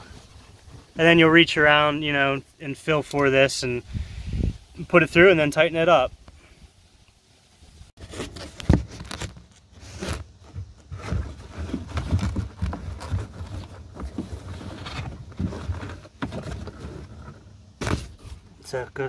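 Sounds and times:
straps rustling and scraping: 0:07.4 - 0:18.8
handling noise on microphone: 0:07.6 - 0:18.9.

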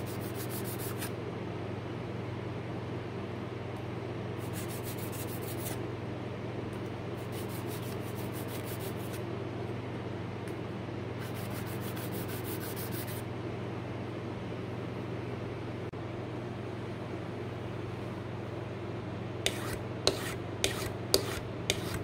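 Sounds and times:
scraper scratching on sharpening surface: 0:00.0 - 0:01.1, 0:04.4 - 0:05.8, 0:19.5 - 0:22.0
steady low hum: 0:00.0 - 0:22.0.

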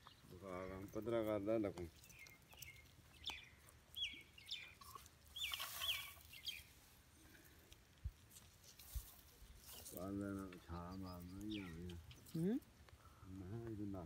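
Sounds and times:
faint bird chirps: 0:02.0 - 0:06.7, 0:10.6 - 0:13.3.

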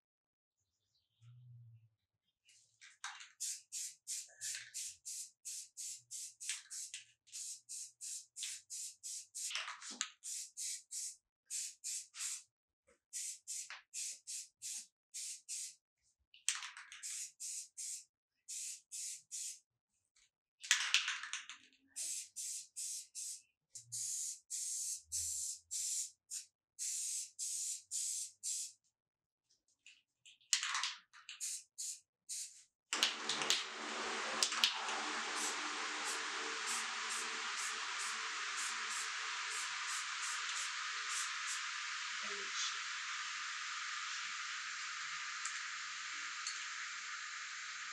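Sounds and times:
spray can hissing: 0:03.3 - 0:12.5, 0:13.1 - 0:15.8, 0:16.9 - 0:19.6, 0:22.0 - 0:28.8, 0:31.4 - 0:45.8
steady rushing noise: 0:33.6 - 0:42.2.

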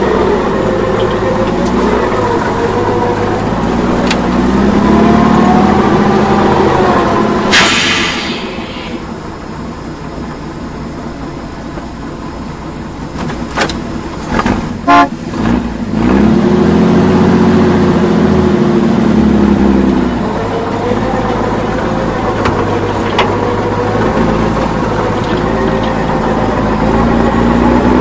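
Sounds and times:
heavy truck engine revving: 0:00.0 - 0:28.0
truck horn toot: 0:14.8 - 0:15.2.

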